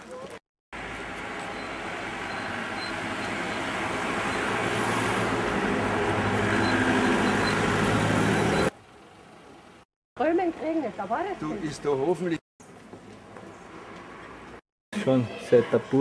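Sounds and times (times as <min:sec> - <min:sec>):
vehicle engine and tyres passing: 0:00.8 - 0:09.8, 0:12.7 - 0:14.6.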